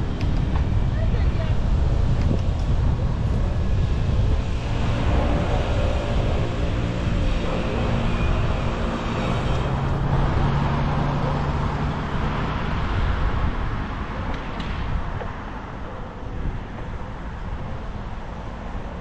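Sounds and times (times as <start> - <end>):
car traffic: 0.0 - 19.0
passing vehicle engine hum: 0.0 - 19.0.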